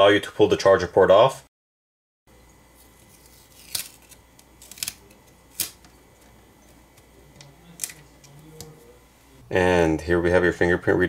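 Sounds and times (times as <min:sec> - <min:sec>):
sharp clicks and crinkles: 0:03.0 - 0:08.7.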